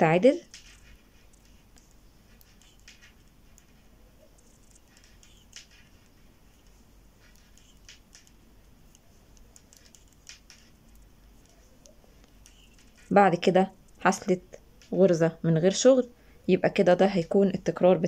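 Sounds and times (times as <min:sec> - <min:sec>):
metal knitting needles ticking: 0:00.4 - 0:13.2.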